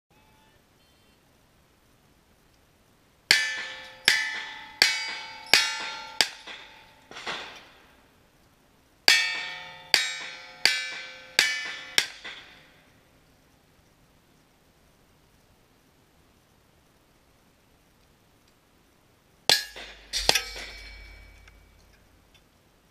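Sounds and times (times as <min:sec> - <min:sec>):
steel plate target ringing: 0:03.3 - 0:07.8, 0:09.1 - 0:12.8, 0:19.5 - 0:22.3.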